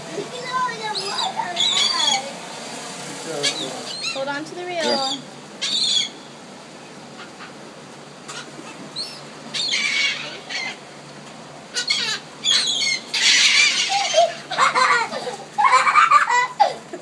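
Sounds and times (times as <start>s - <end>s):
gulls wings beating: 0.0s - 17.0s
gulls squawking: 0.4s - 2.4s, 3.2s - 6.4s, 7.1s - 10.9s, 11.7s - 16.6s
child squealing laughter: 13.2s - 17.0s.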